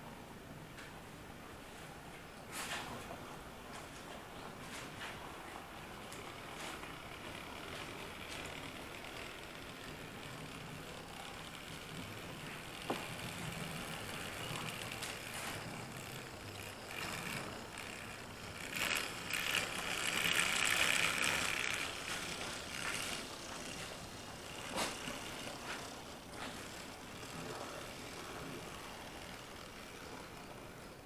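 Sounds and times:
model train whirring and rattling: 2.6s - 31.0s.

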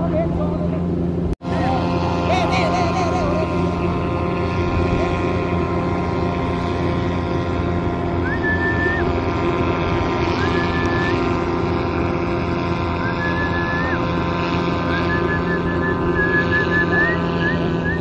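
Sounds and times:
kite hummers droning in wind: 0.0s - 18.0s
short high whistles: 10.4s - 11.2s, 13.0s - 14.0s, 14.9s - 18.0s.

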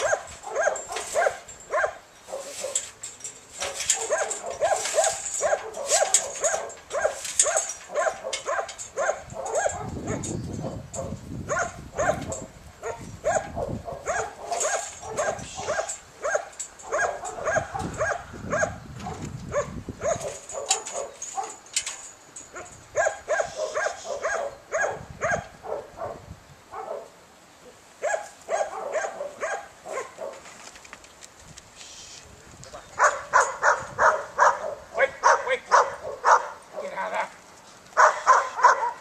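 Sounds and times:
dog barking rapidly: 0.0s - 2.8s, 4.0s - 10.3s, 11.0s - 21.6s, 23.0s - 26.2s, 28.0s - 30.4s, 33.0s - 36.9s, 38.0s - 39.0s.

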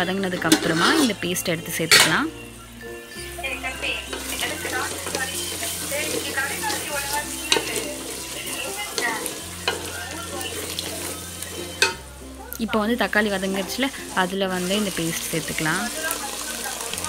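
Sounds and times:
wooden spatula scraping pot: 0.0s - 2.4s, 3.7s - 12.0s
food sizzling in oil: 0.0s - 17.0s
spatula clicking: 4.1s - 12.0s.

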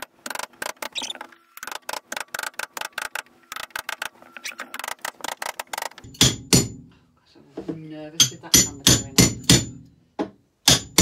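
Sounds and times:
hammer tapping: 6.0s - 6.9s, 8.2s - 11.0s.

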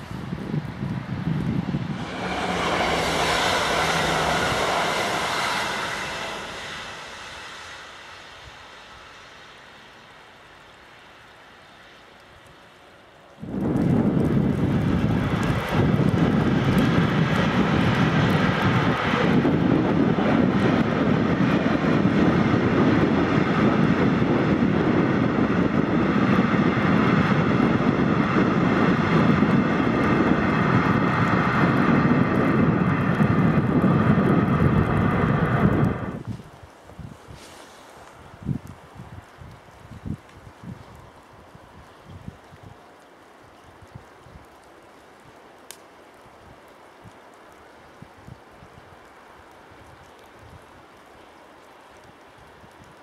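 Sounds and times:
train wheels rumbling on rails: 0.0s - 9.3s, 13.4s - 36.4s.

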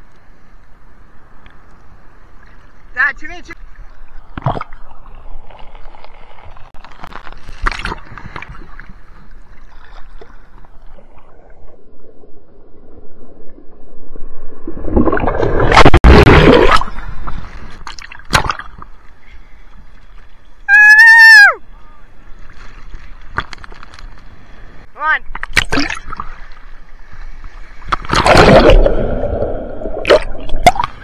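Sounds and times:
water sloshing and gurgling: 1.2s - 20.6s, 22.2s - 31.0s
water slap: 25.4s - 26.2s.

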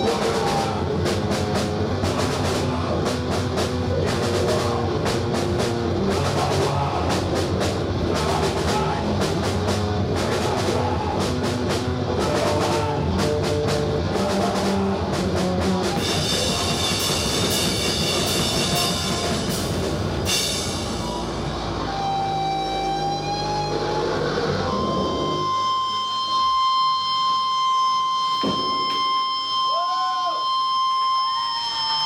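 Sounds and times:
fast dense drumming: 0.0s - 22.5s
distorted guitar noise: 0.0s - 32.0s
guitar amplifier feedback whine: 10.8s - 32.0s.

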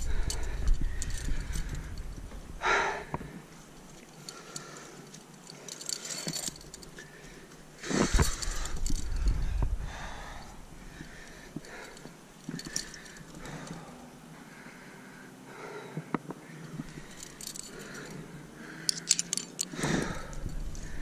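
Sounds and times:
person breathing: 0.0s - 2.0s, 2.6s - 3.5s, 4.2s - 21.0s
carabiners rustling and jangling: 0.0s - 2.4s, 3.5s - 9.5s, 11.0s - 14.0s, 16.4s - 21.0s
wind rumble on microphone: 0.0s - 3.5s, 7.8s - 11.7s, 19.8s - 21.0s.

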